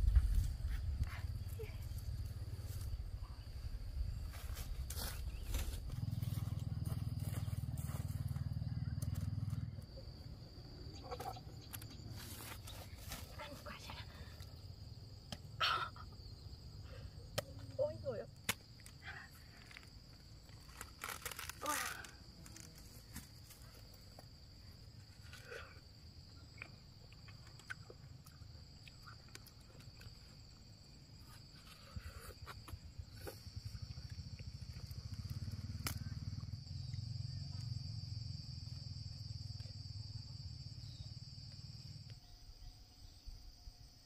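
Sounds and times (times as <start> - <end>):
insects chirring: 0.0 - 44.0
watermelon cracking and crunching: 19.6 - 23.4, 26.4 - 30.3.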